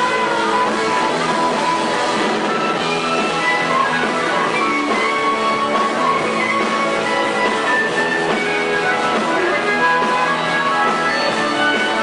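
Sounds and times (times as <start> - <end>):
electric guitar: 0.0 - 12.0.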